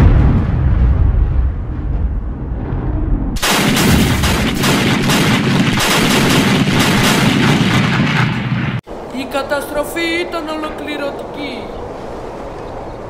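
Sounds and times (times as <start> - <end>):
deep rumbling blast: 0.0 - 8.8
rapid gunfire and cannon shots: 3.4 - 8.8.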